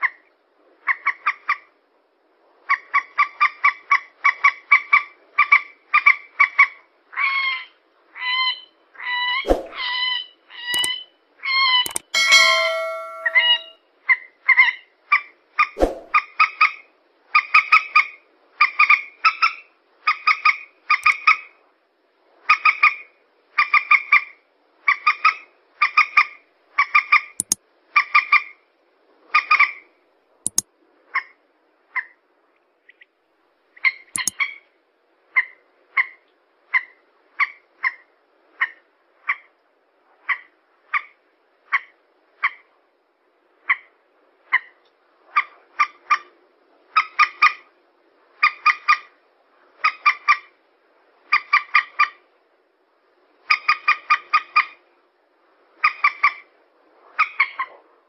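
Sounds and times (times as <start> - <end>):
sharp clicks: 11.9 - 12.1, 34.2 - 34.4.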